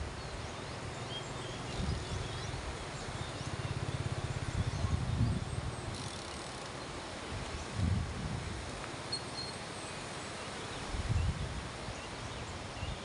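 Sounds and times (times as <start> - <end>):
steady hiss: 0.0 - 13.0
wind buffeting microphone: 1.6 - 6.0, 7.2 - 8.7, 10.8 - 11.9
small motorcycle engine puttering: 5.9 - 6.8
faint high chirping: 9.1 - 9.6.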